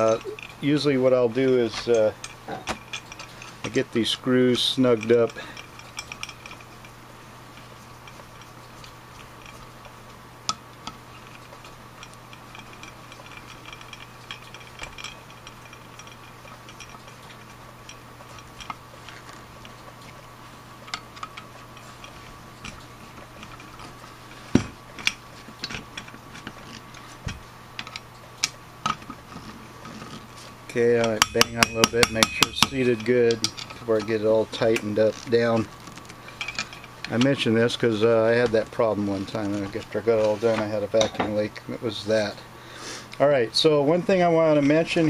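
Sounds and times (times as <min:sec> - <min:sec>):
metal knocks: 0:31.0 - 0:34.2.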